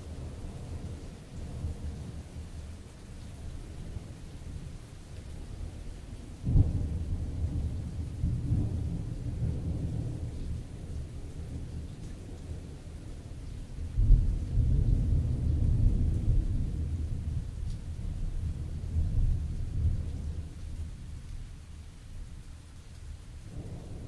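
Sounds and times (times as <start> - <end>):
thunder clap and rumble: 6.4 - 13.2, 13.8 - 21.5, 23.5 - 24.0.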